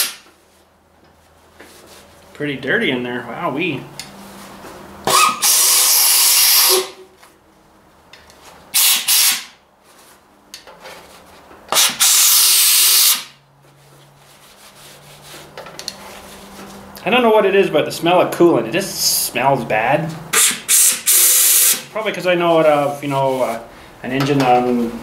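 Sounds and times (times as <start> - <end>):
air blow gun hissing: 5.1 - 6.8, 8.8 - 9.5, 11.8 - 13.3, 20.3 - 21.8.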